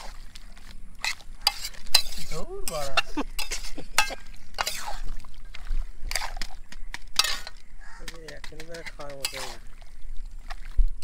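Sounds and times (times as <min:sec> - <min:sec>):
metal spatula scraping pan: 0:01.0 - 0:05.2, 0:07.2 - 0:07.6, 0:08.3 - 0:09.8.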